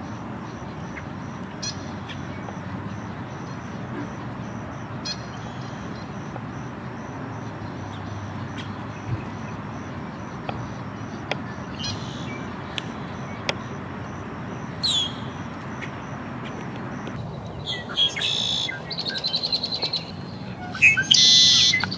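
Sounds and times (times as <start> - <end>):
bird chatter: 14.7 - 21.9
blackbird call notes: 14.7 - 21.9
descending bird whistle: 17.6 - 21.9.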